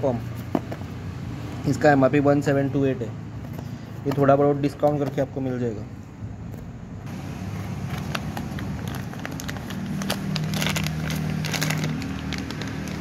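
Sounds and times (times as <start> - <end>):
plastic crinkling: 7.8 - 13.0.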